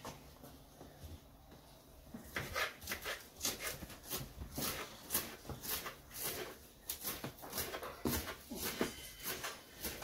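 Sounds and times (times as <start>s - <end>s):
knife slicing celery on board: 2.3s - 10.0s.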